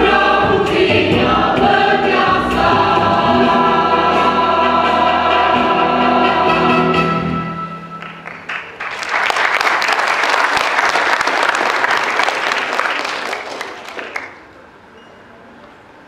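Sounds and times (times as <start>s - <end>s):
choir holding chord: 0.0s - 7.9s
audience applauding: 8.0s - 14.5s.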